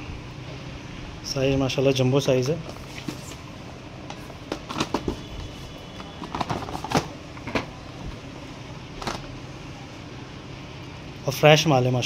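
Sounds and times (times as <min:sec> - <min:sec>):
steady hum: 0:00.0 - 0:12.0
cardboard and plastic rustling: 0:02.6 - 0:03.5, 0:04.1 - 0:07.2.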